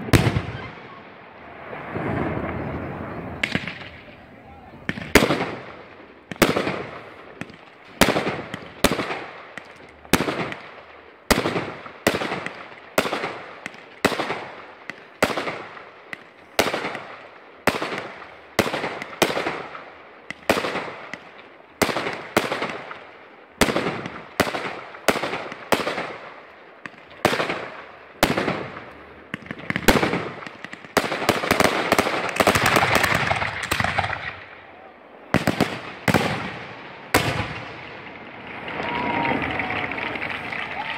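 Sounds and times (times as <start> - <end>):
fireworks banging and crackling: 0.0 - 40.9.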